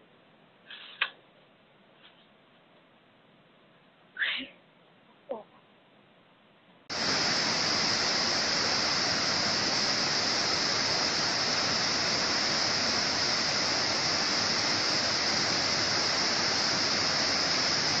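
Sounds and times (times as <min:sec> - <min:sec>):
stream rushing over rocks: 0:06.9 - 0:18.0.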